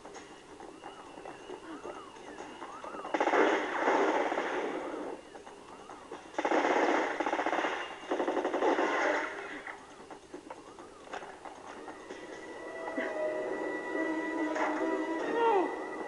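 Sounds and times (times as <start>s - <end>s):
automatic gunfire bursts: 3.1s - 5.1s, 6.4s - 9.6s.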